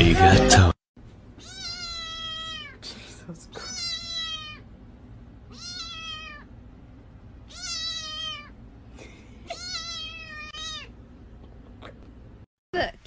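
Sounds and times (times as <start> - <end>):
kitten meowing: 1.4 - 2.8, 3.6 - 4.6, 5.5 - 6.5, 7.5 - 8.6, 9.5 - 10.9.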